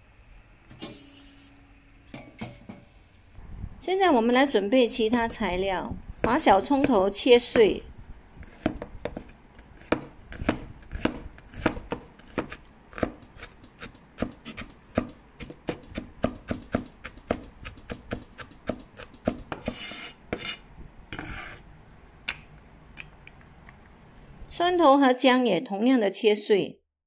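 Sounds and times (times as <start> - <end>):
cleaver chopping on cutting board: 8.5 - 20.6
blade scraping across board: 17.1 - 20.6, 21.2 - 21.6.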